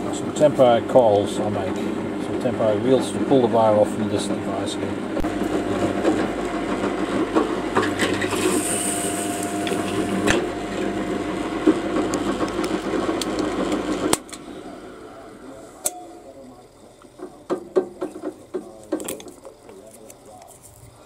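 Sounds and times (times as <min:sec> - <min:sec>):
drill press motor hum: 0:05.0 - 0:17.5.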